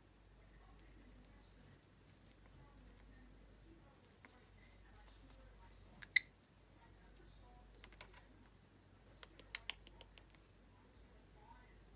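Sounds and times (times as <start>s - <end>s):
parrot beak clicking: 9.2s - 10.4s.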